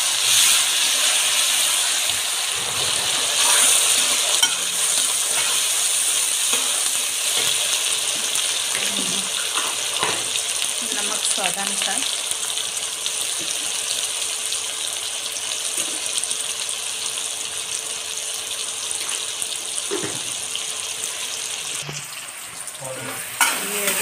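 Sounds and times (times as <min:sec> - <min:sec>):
onions sizzling in oil: 0:00.0 - 0:24.0
metal spoon stirring: 0:03.3 - 0:05.7.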